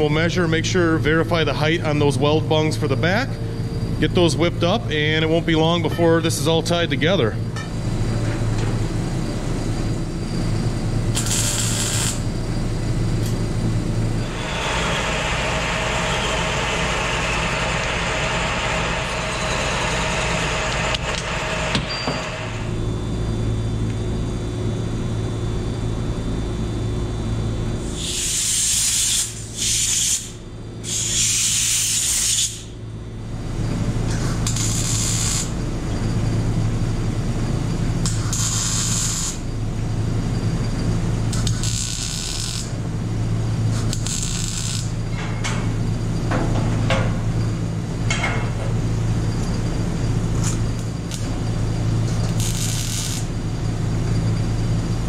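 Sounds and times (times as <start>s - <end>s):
electrical hum: 0.0s - 55.0s
shop machine noise: 0.0s - 55.0s
welder crackling hiss: 11.1s - 12.2s, 27.8s - 32.7s, 34.5s - 35.6s, 38.0s - 39.4s, 41.3s - 42.7s, 43.7s - 45.0s, 52.2s - 53.4s.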